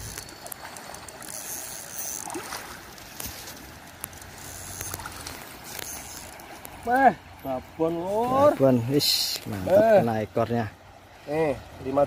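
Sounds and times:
fish thrashing and splashing: 0:00.0 - 0:06.9.

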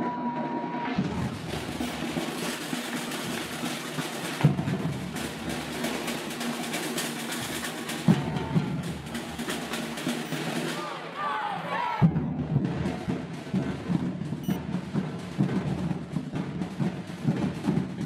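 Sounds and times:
drums beaten in fast rhythm: 0:00.0 - 0:18.0
loud accented drum hits: 0:01.0 - 0:06.0.

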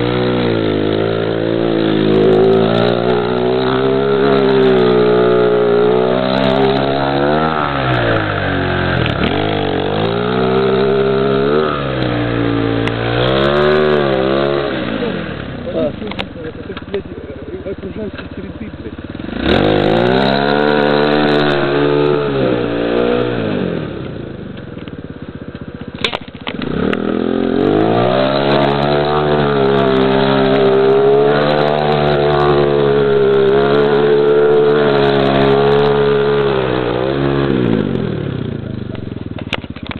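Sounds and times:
quad engine revving: 0:00.0 - 0:39.9
sharp click: 0:26.0 - 0:27.0.

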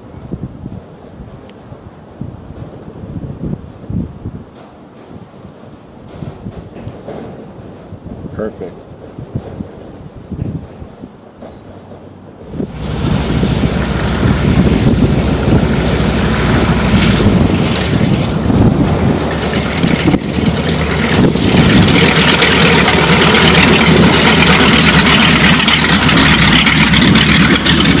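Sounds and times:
radial aircraft engine rumbling: 0:09.8 - 0:28.0
propeller noise: 0:11.8 - 0:28.0.

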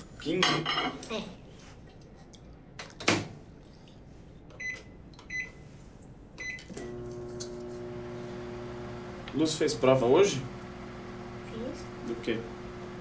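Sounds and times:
microwave oven humming: 0:06.7 - 0:13.0.

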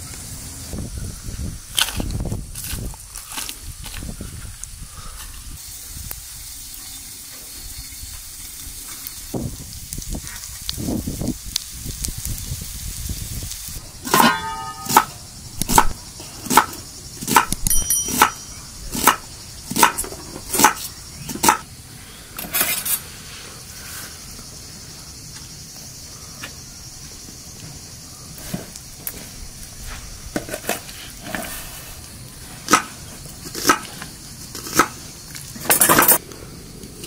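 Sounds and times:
steady hiss: 0:00.0 - 0:37.0
sharp chopping strikes: 0:14.1 - 0:16.7, 0:17.3 - 0:18.4, 0:20.6 - 0:21.6.

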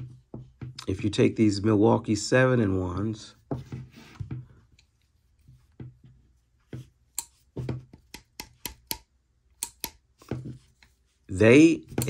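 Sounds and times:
pliers clicking open and shut: 0:09.6 - 0:10.0.

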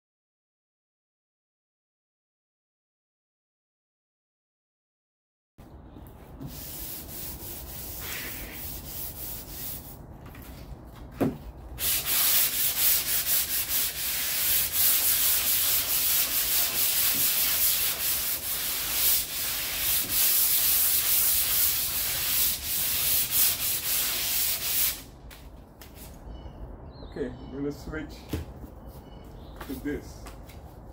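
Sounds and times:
sandpaper scrubbing body filler: 0:06.5 - 0:10.0, 0:11.8 - 0:25.0.

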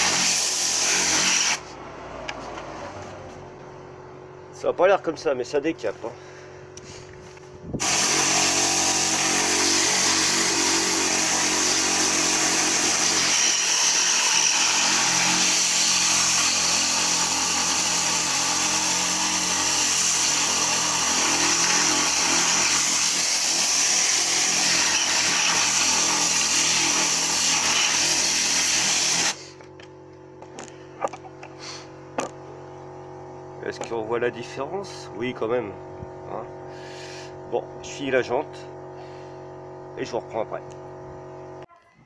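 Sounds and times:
air cleaning gun hissing: 0:00.0 - 0:01.8, 0:07.8 - 0:29.6.

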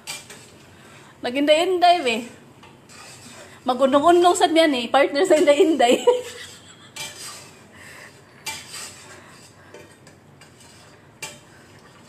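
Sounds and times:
kitchen utensils and dishes clinking: 0:00.0 - 0:00.6, 0:05.2 - 0:12.0.

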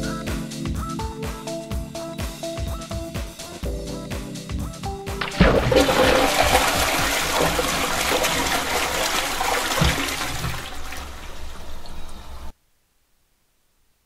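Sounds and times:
rushing water: 0:05.2 - 0:12.5.

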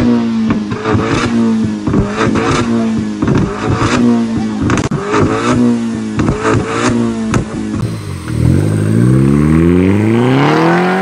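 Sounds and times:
exhaust pops and crackles: 0:00.0 - 0:09.2
car engine revving: 0:00.0 - 0:11.0.

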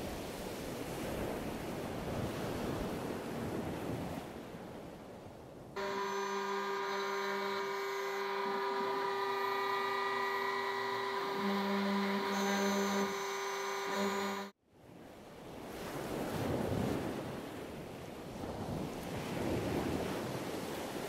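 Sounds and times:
milling machine spindle whine: 0:05.8 - 0:14.6.

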